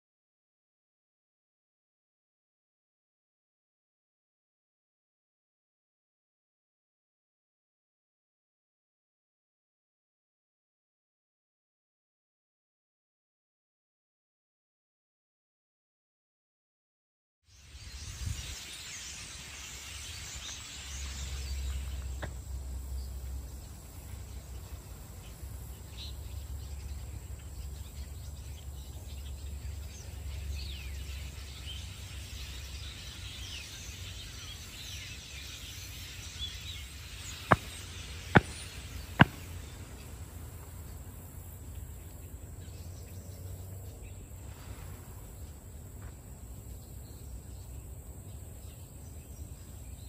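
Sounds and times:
short bird calls: 32.4s - 40.4s.

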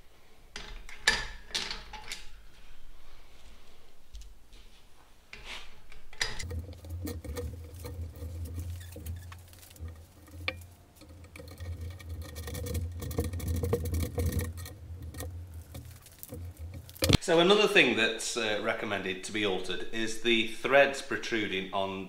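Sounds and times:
low steady hum: 0.0s - 21.9s
hand file scraping metal: 6.4s - 17.0s.

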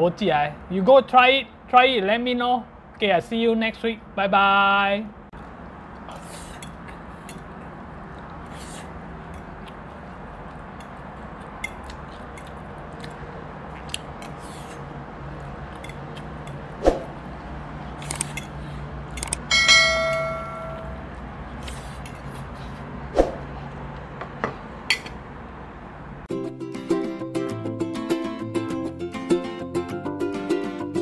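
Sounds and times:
bright bell ding: 19.5s - 21.0s.

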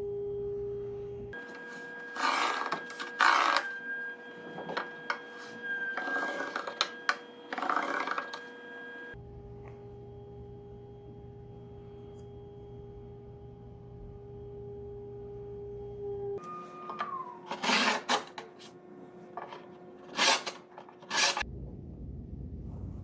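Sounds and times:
low hum with held tone: 0.0s - 20.1s
wooden tool scraping on wood: 1.5s - 3.7s, 5.4s - 8.4s, 19.4s - 21.4s.

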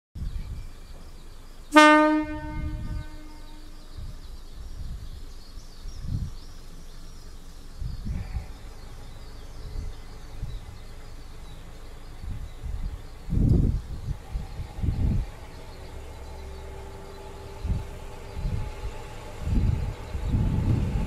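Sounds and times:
low rumbling noise: 0.2s - 21.0s
railcar air horn blast: 1.7s - 3.8s.

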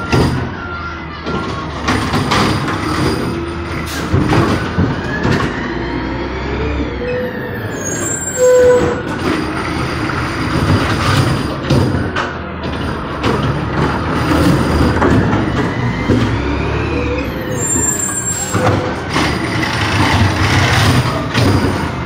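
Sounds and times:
metal clanks and knocks: 0.0s - 0.6s, 1.2s - 5.6s, 8.6s - 16.4s, 18.0s - 22.0s
garbage truck engine running: 0.0s - 22.0s
lifting arm squeal: 6.9s - 9.1s, 16.9s - 18.7s.

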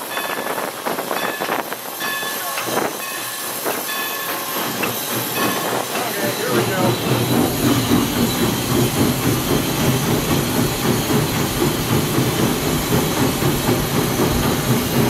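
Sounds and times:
locomotive rumble and clatter: 0.0s - 15.0s
steam hissing: 0.0s - 15.0s.

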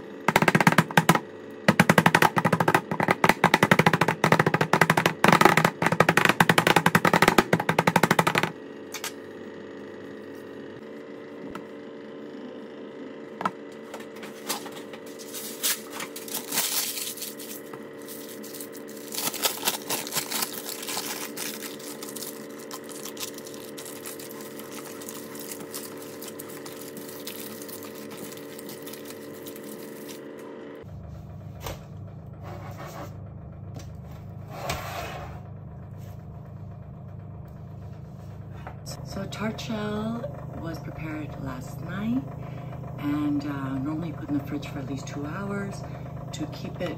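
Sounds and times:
steady hum: 0.0s - 46.9s
hands rustling pastry and paper: 15.1s - 30.2s.

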